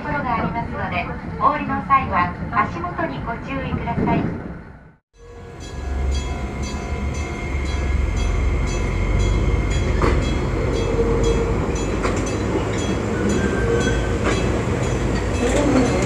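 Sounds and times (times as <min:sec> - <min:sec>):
train wheels rumbling on track: 0:05.2 - 0:16.0.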